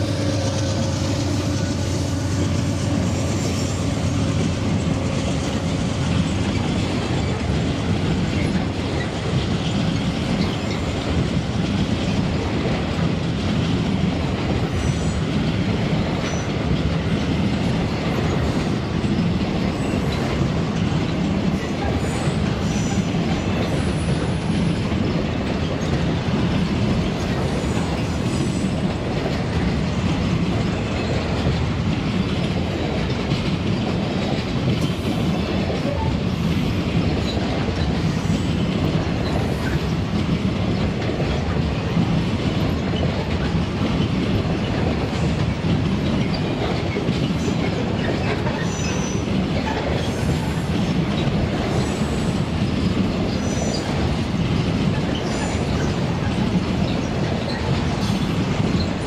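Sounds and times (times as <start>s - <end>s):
clickety-clack over rail joints: 0.0s - 59.0s
steel wheels rumbling on rails: 0.0s - 59.0s
faint high wheel squeal: 47.4s - 50.7s, 53.3s - 53.9s.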